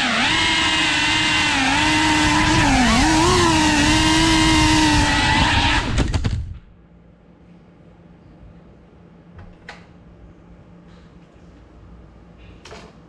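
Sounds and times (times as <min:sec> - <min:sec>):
drone propellers whining: 0:00.0 - 0:06.6.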